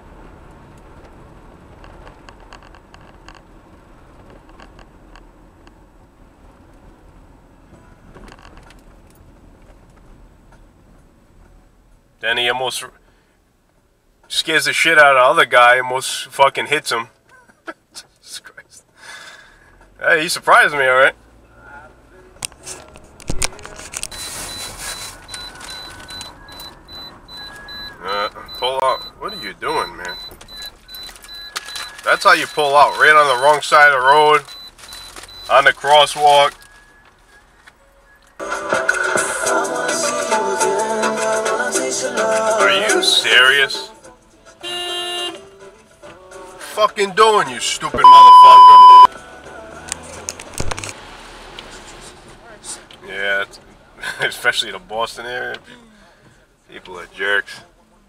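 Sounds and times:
car road and engine rumble: 0.0s - 58.0s
car cabin noise: 22.3s - 37.9s, 47.0s - 49.1s
faint high-pitched beeping: 24.1s - 33.8s, 48.0s - 49.1s.

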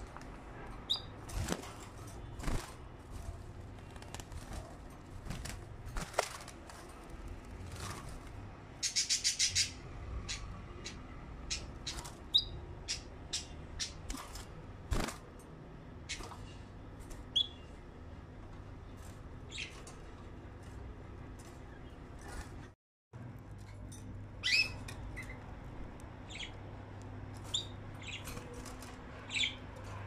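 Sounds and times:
bird chirps: 0.9s - 1.1s, 8.8s - 14.1s, 17.3s - 17.7s, 24.4s - 25.4s, 26.2s - 26.6s
bird wing flaps: 1.2s - 8.4s
birds clicking on cage bars: 10.4s - 17.7s, 23.3s - 30.0s.

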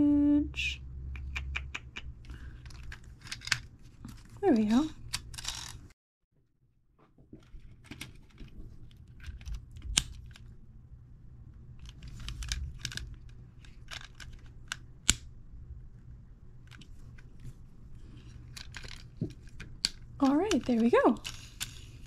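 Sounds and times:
plastic toy parts clicking: 2.2s - 3.7s, 5.0s - 5.8s, 11.8s - 15.3s, 18.2s - 22.0s
plastic parts snapping together: 11.8s - 15.3s, 18.5s - 21.9s.

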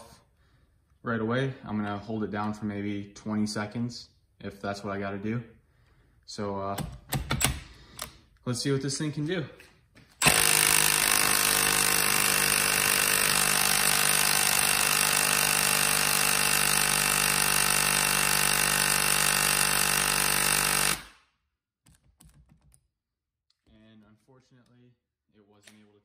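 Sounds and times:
impact wrench hammering: 10.2s - 21.2s.

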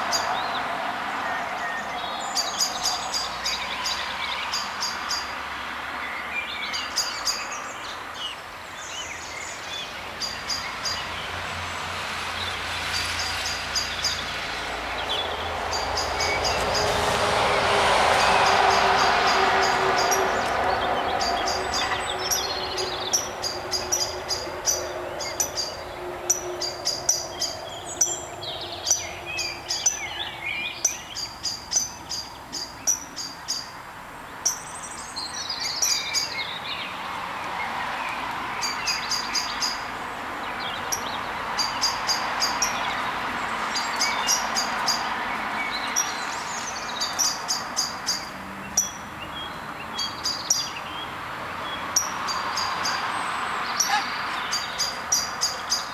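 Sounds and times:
warbling bird calls: 15.0s - 33.8s, 40.5s - 55.9s.

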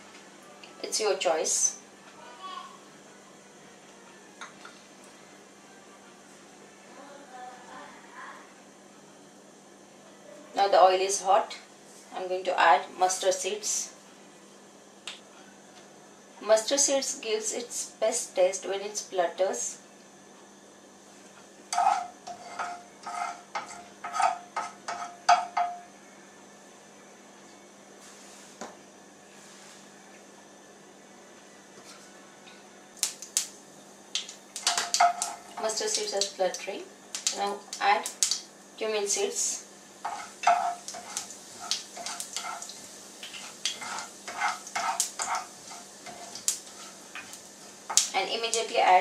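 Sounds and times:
seeds sizzling in hot oil: 21.7s - 25.4s, 32.9s - 49.0s
spoon scraping a frying pan: 21.7s - 25.8s, 34.6s - 36.3s, 40.0s - 48.0s.

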